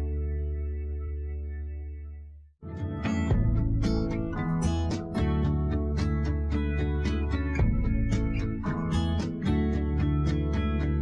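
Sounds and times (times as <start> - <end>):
strummed guitar chords: 2.6 - 11.0.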